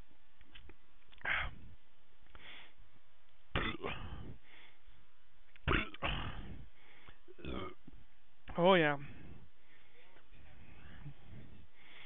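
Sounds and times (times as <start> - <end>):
man coughing: 3.6 - 4.3.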